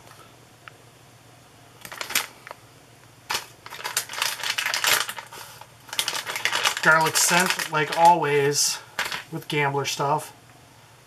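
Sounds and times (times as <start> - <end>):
plastic packet crinkling: 1.8 - 2.5, 3.3 - 9.4.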